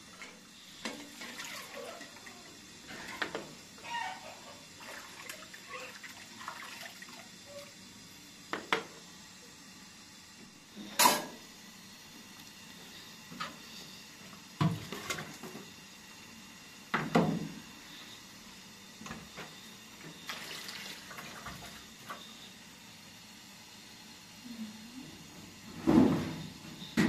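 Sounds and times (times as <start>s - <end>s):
water sloshing in a bowl: 0.8s - 3.3s, 4.8s - 7.3s.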